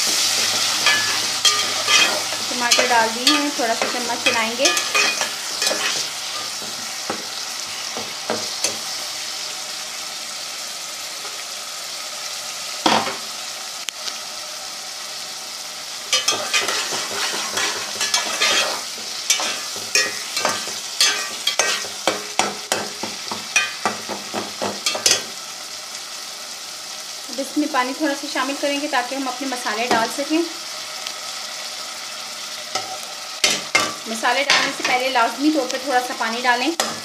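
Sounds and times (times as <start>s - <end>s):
metal spoon scraping a pot: 0.0s - 6.8s, 16.2s - 22.1s
tomatoes sizzling in oil: 0.0s - 37.0s.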